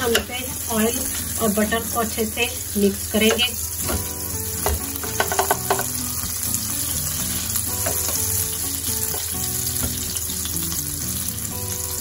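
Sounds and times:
butter sizzling in a frying pan: 0.0s - 12.0s
spatula scraping and tapping a pan: 3.2s - 6.0s, 7.7s - 8.4s.

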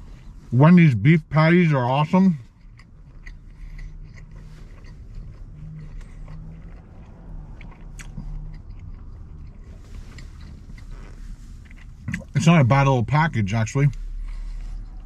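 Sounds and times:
closed-mouth humming: 0.0s - 15.0s
person chewing food: 2.4s - 12.7s.

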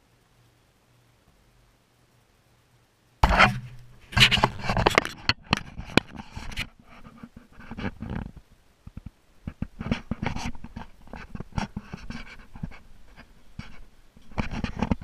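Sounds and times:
rustling against microphone: 3.2s - 15.0s.

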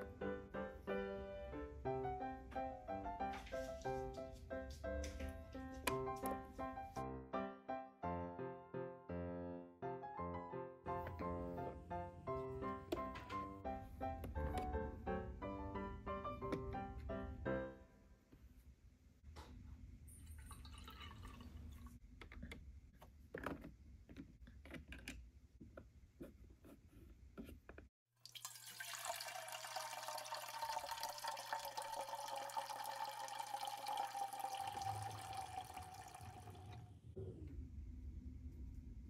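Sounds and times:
water trickling into cup: 20.2s - 22.0s, 28.2s - 36.8s.

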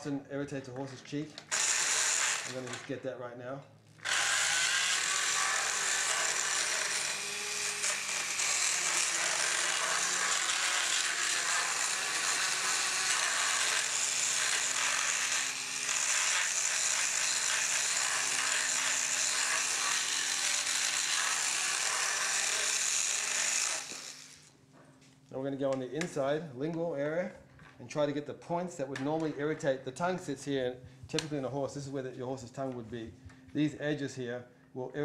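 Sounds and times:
high grinding noise: 1.5s - 2.9s, 4.0s - 24.5s.

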